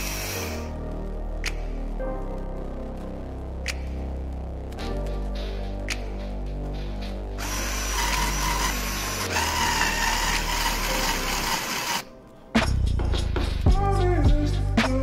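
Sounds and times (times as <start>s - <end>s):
power screwdriver motor whining: 7.4s - 12.1s.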